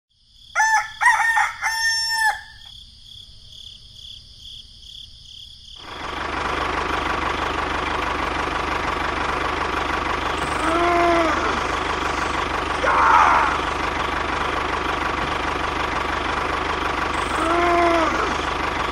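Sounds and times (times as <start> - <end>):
rooster crowing: 0.5 - 2.7
engine-like running noise: 5.8 - 18.9.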